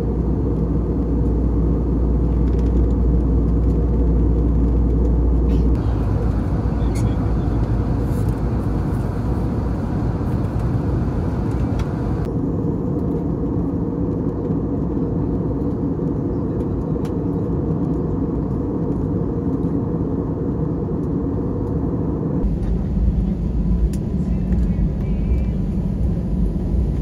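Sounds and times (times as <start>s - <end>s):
airliner cabin engine rumble: 0.0s - 27.0s.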